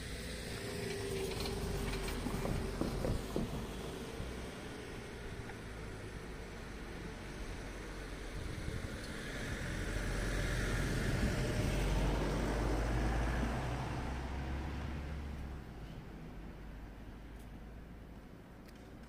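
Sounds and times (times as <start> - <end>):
vehicle passing by: 6.4 - 17.0.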